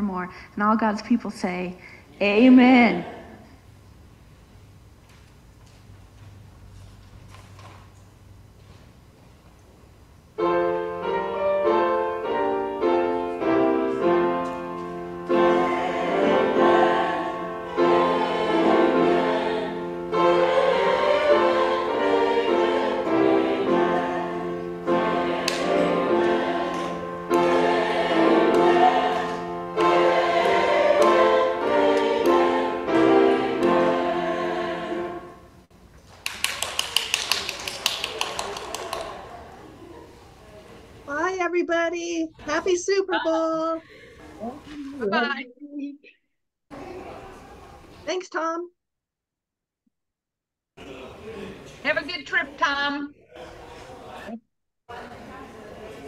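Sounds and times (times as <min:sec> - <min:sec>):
choir singing in harmony: 0:12.2 - 0:35.6.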